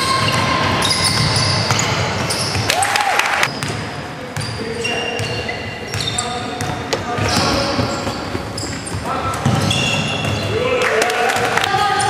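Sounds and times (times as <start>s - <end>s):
basketball bouncing on floor: 5.9s - 10.5s.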